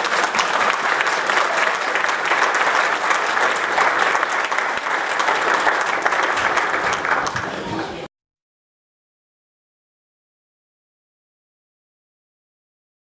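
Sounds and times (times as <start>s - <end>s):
crowd applauding: 0.0s - 8.1s.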